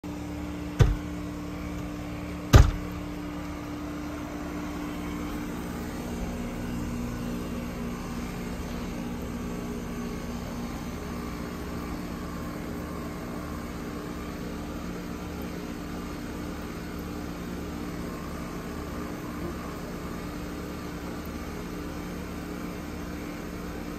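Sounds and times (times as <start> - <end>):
heat pump humming: 0.0 - 23.9
loud sharp knocks: 0.8 - 1.1, 2.5 - 2.9.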